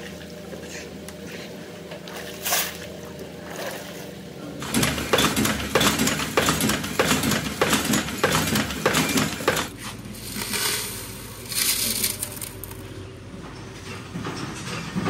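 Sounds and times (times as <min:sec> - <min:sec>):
workshop noise: 0:00.0 - 0:15.0
clanking strikes on iron: 0:04.6 - 0:09.7.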